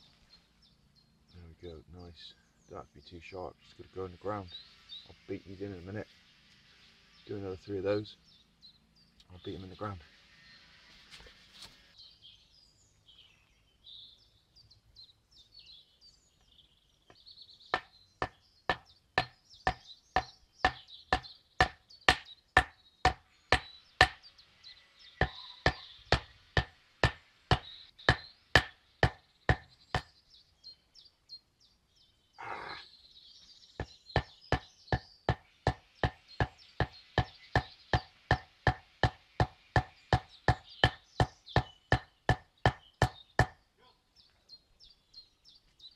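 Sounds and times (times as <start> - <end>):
birds chirping: 0.0 - 45.9.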